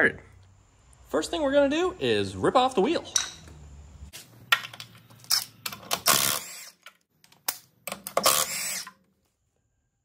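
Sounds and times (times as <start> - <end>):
impact wrench bursts: 5.4 - 6.8, 8.1 - 9.0.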